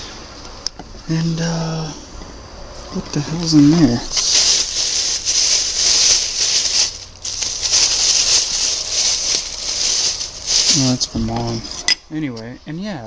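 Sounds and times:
plastic bag rustling and crinkling: 0:03.4 - 0:11.8.

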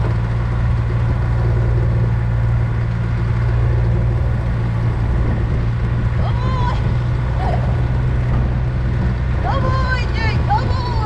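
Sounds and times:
vehicle engine running: 0:00.0 - 0:11.0.

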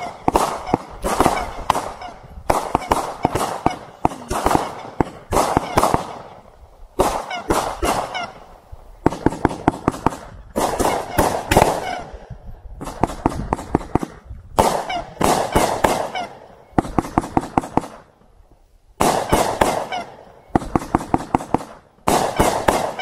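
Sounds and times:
fireworks bangs: 0:00.0 - 0:18.2, 0:19.0 - 0:23.0.

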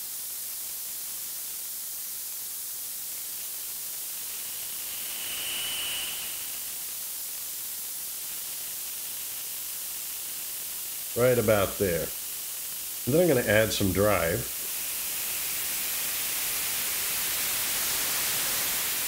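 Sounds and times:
synthesized noise hissing: 0:00.0 - 0:19.0
whistling filter resonance ring: 0:04.2 - 0:06.8.

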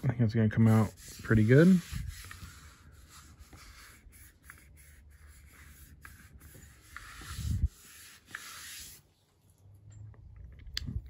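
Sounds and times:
hand rubbing plastic helmet: 0:00.4 - 0:09.2.

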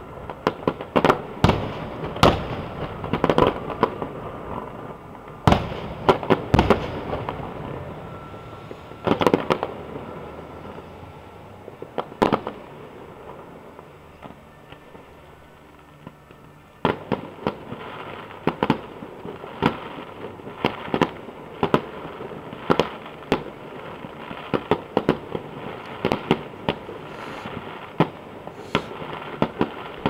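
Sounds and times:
fireworks banging and crackling: 0:00.0 - 0:30.0.

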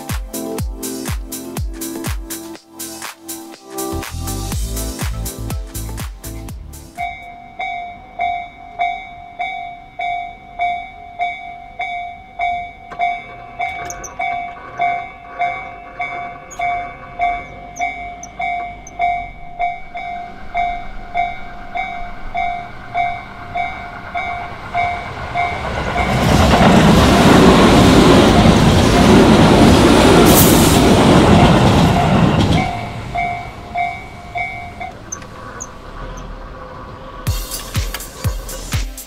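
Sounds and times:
train passing with wheel noise: 0:00.0 - 0:39.0.

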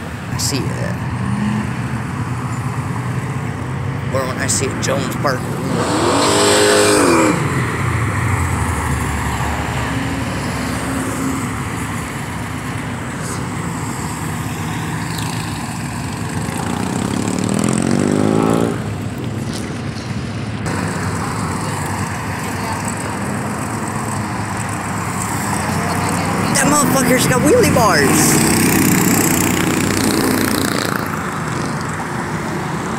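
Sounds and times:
cars driving past: 0:00.0 - 0:32.9
road noise: 0:00.0 - 0:32.9
engine revving up: 0:04.2 - 0:07.8, 0:16.4 - 0:19.7, 0:20.7 - 0:32.0.

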